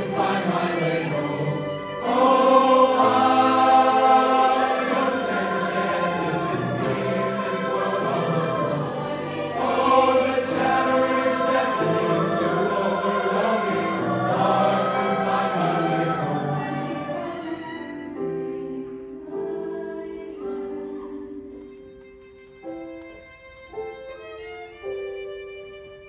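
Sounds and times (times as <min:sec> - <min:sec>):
violin playing held notes: 0:00.0 - 0:18.7
mixed choir singing: 0:00.0 - 0:21.6
piano accompaniment: 0:00.0 - 0:26.0.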